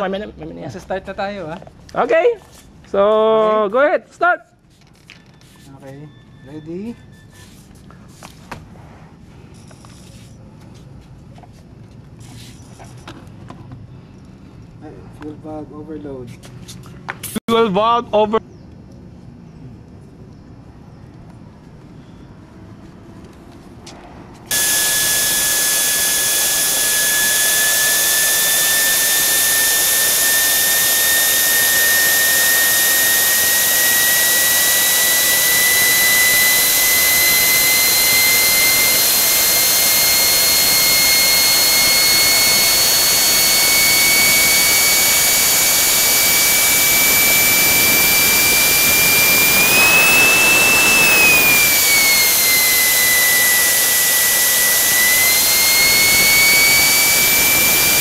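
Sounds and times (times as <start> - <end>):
model jet turbine whine: 24.5 - 58.0.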